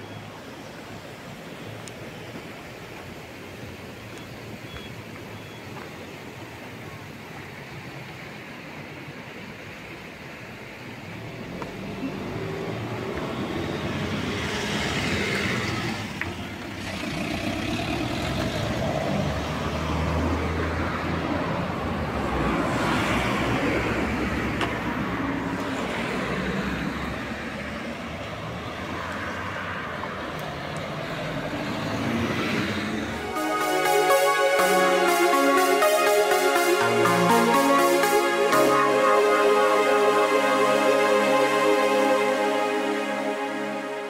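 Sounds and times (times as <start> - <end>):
motor vehicles passing: 11.2 - 33.2.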